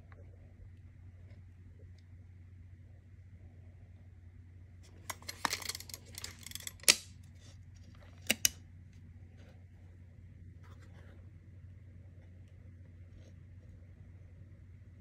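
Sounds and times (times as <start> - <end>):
faint steady hum: 0.0 - 15.0
tape measure clicks and rattles: 5.0 - 7.2.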